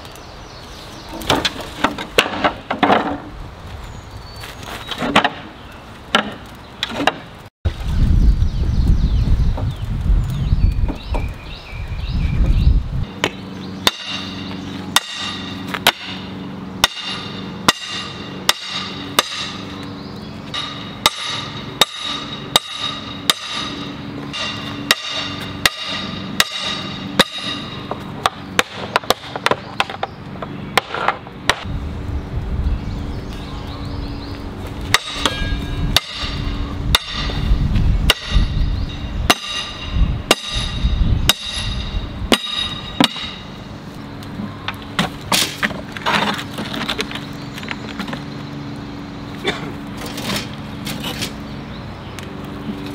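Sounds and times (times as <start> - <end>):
hammer striking metal hoops: 13.2 - 19.8, 20.4 - 30.1, 30.7 - 31.7, 34.9 - 43.6
metallic ring: 20.5 - 27.9, 35.0 - 37.4, 38.2 - 43.6.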